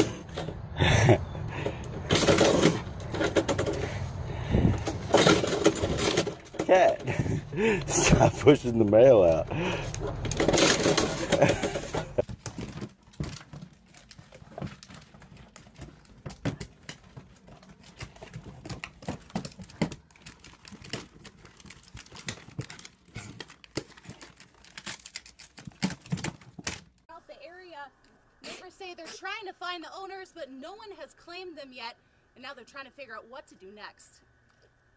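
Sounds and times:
plastic and paper crinkling: 8.9s - 27.1s.

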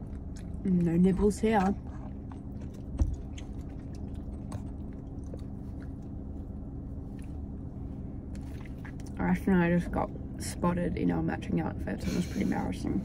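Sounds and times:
people chewing: 0.0s - 7.4s
low hum inside a car: 0.0s - 13.0s.

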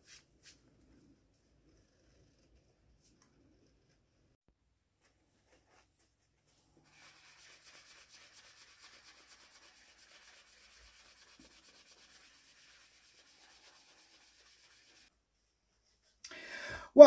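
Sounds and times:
hand sanding wood: 6.8s - 15.1s.

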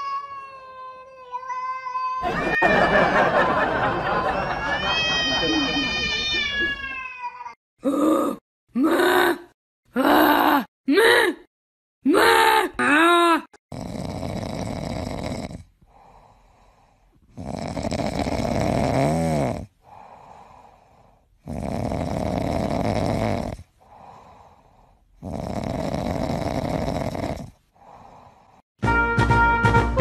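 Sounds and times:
cat trill: 4.4s - 7.6s
music: 28.8s - 30.0s.

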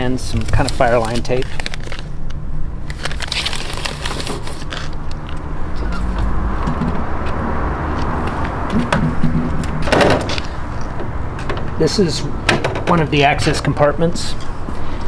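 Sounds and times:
steady low rumble: 5.0s - 9.9s.

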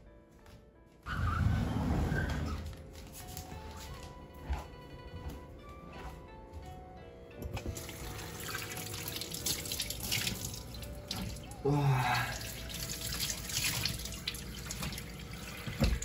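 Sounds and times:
soft background music: 0.0s - 16.0s
tap water running into sink: 7.5s - 11.5s, 12.4s - 16.0s.

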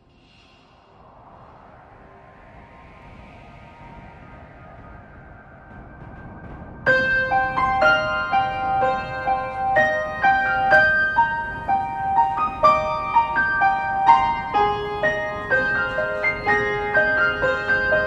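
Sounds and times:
keyboard melody over chords: 6.9s - 18.0s.

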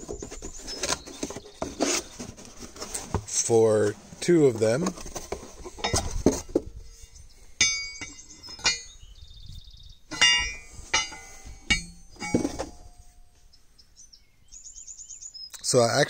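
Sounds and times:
metal blades clinking: 7.6s - 9.0s, 10.1s - 12.7s.

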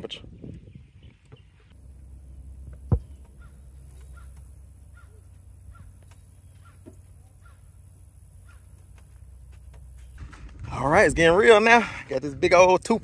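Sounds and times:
crow cawing: 3.4s - 5.9s, 8.4s - 8.8s.

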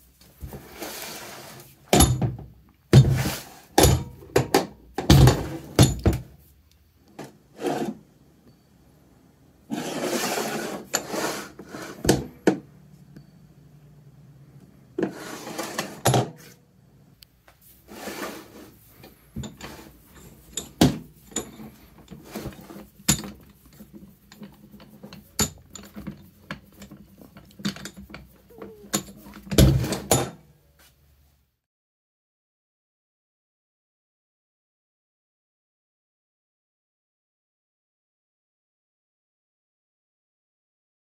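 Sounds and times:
vise scraping metal: 7.5s - 8.0s, 9.7s - 12.2s, 15.0s - 16.6s, 17.8s - 30.2s.

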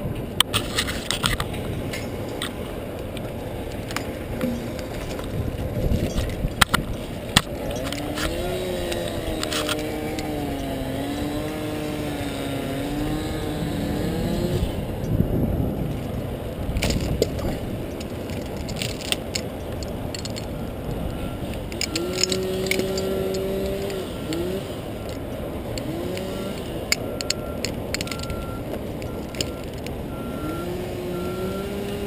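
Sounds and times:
crane engine rumbling: 0.0s - 32.0s
wavering tone: 4.4s - 6.3s.

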